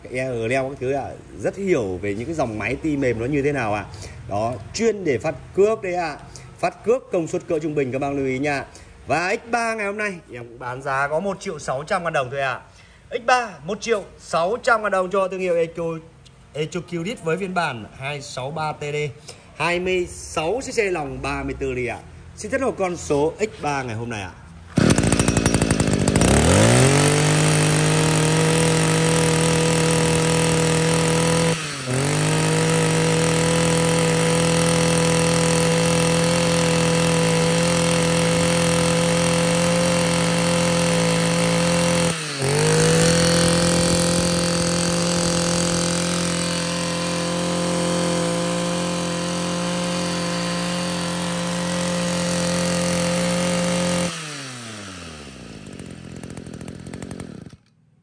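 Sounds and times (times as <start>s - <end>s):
brush cutter engine revving: 24.6s - 57.9s.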